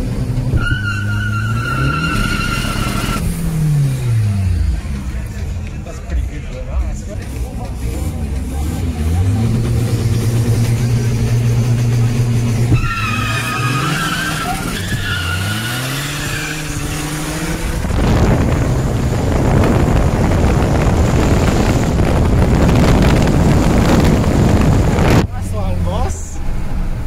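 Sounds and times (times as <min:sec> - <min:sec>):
car engine accelerating: 0:00.0 - 0:27.0
turbo squeal: 0:00.6 - 0:03.2, 0:12.7 - 0:17.0
wind rush at speed: 0:16.2 - 0:25.3.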